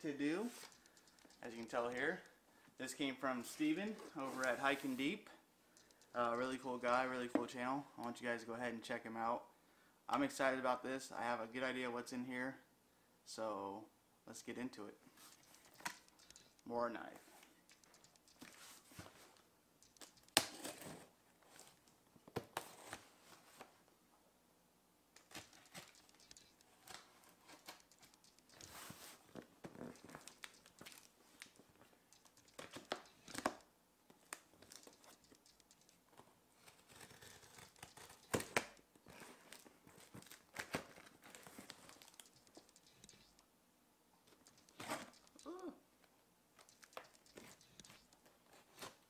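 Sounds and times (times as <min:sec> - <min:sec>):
sharp clicks: 0:00.6 - 0:02.0, 0:05.7 - 0:06.2, 0:15.3 - 0:16.7, 0:17.4 - 0:18.6, 0:19.8 - 0:20.6, 0:25.2 - 0:29.0, 0:29.8 - 0:33.6, 0:34.2 - 0:36.1, 0:37.4 - 0:38.8, 0:41.6 - 0:43.5, 0:44.3 - 0:45.7, 0:46.6 - 0:48.2.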